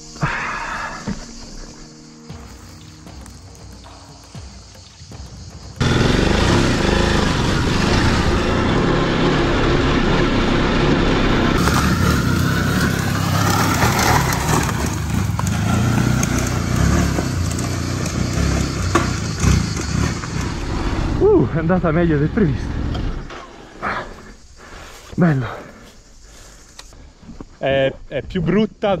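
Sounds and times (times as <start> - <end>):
motorcycle engine revving: 5.7 - 23.8.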